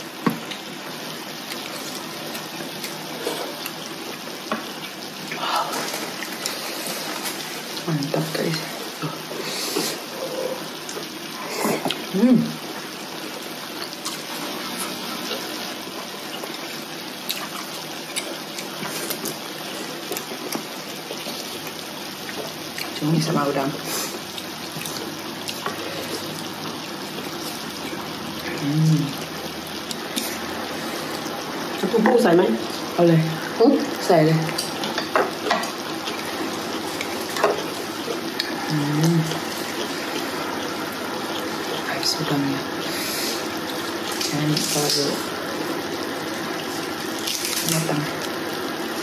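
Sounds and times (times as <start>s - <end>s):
food bubbling and sizzling: 0.0s - 49.0s.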